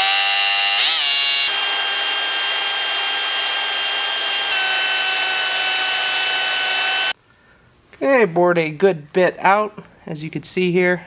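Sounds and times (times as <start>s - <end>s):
cordless drill whining: 0.0s - 7.2s.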